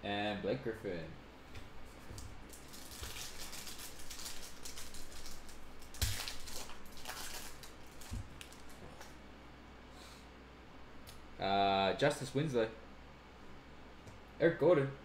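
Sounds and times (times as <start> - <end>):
foil wrapper crinkling: 2.1 - 9.2
wrapper ripping: 2.5 - 9.1.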